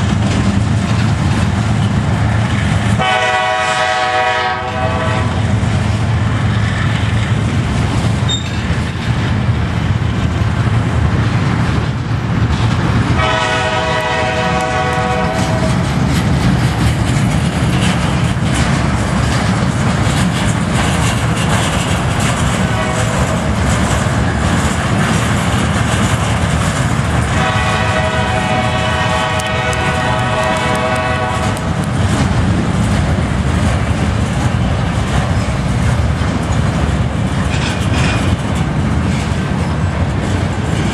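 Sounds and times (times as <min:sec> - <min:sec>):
diesel locomotive engine: 0:00.0 - 0:40.9
train wheels rumbling on rail: 0:00.0 - 0:40.9
train horn blasts: 0:03.0 - 0:05.6, 0:13.2 - 0:15.8, 0:22.5 - 0:23.5, 0:27.3 - 0:31.8.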